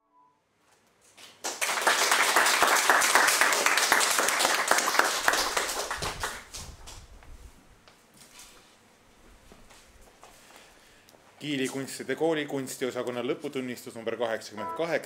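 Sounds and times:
audience applauding: 0:01.4 - 0:06.6.

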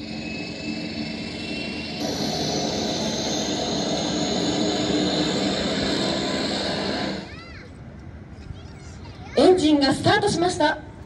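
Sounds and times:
turboprop engine whine and rumble: 0:00.0 - 0:11.0.

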